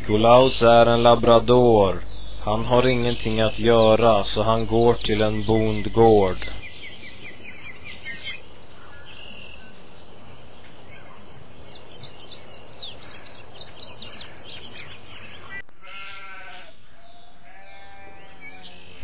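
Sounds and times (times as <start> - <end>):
bird chirps: 2.0 - 15.6, 17.0 - 19.0
sheep bleating: 15.8 - 18.9.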